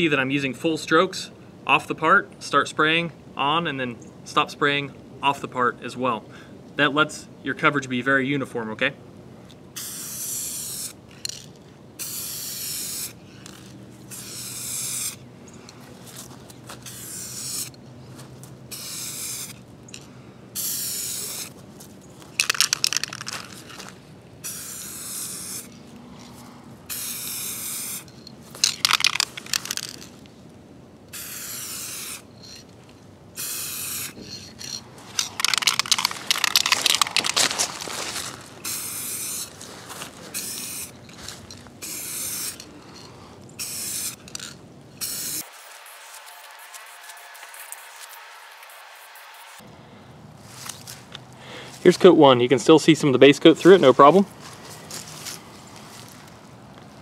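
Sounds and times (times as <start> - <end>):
aerosol paint spraying: 9.8 - 11.0, 12.0 - 15.2, 16.7 - 17.8, 18.7 - 19.6, 20.6 - 21.6, 24.4 - 25.8, 26.9 - 30.0, 31.1 - 32.6, 33.4 - 37.4, 38.6 - 39.6, 40.3 - 41.0, 41.8 - 42.7, 43.6 - 49.6
spray can ball rattling: 9.8 - 15.2, 16.8 - 17.8, 18.7 - 19.6, 20.6 - 21.6, 22.4 - 25.8, 26.9 - 30.2, 31.1 - 32.7, 33.4 - 39.5, 40.3 - 48.8.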